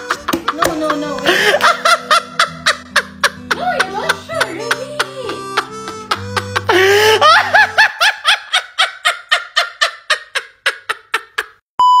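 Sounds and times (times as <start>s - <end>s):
steady electronic beep: 11.8s - 12.0s.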